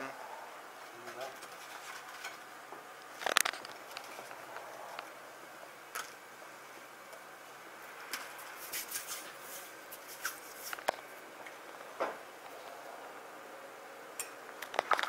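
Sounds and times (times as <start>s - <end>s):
paper towel rustling: 8.3s - 11.1s.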